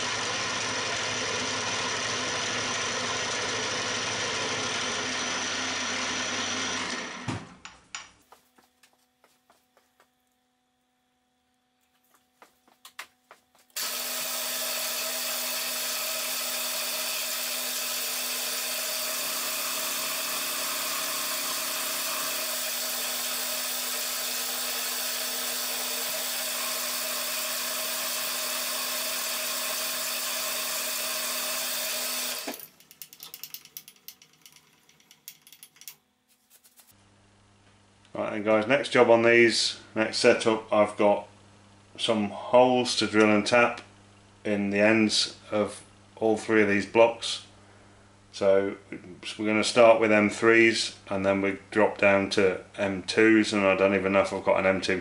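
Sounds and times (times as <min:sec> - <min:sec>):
milling machine spindle running: 0:00.0 - 0:07.3, 0:13.8 - 0:35.6.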